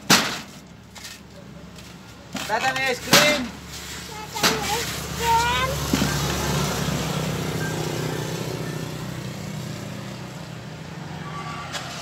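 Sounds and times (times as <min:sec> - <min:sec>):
vehicle engine passing: 0:03.8 - 0:12.0
steady high tone: 0:05.2 - 0:09.4.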